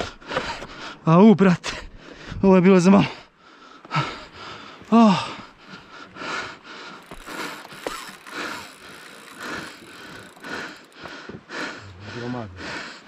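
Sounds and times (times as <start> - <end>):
fishing reel gears whirring: 6.9 - 11.1.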